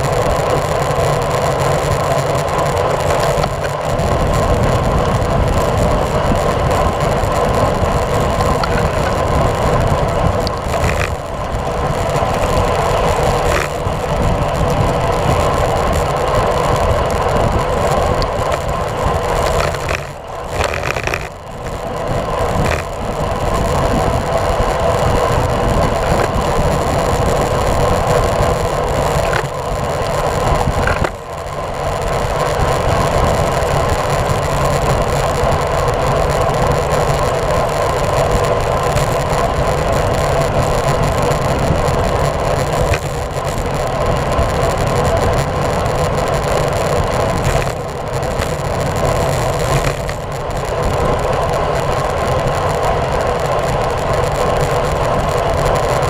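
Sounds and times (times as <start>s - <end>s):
tyres on wet road: 0.0s - 56.0s
wind rushing over microphone: 0.0s - 56.0s.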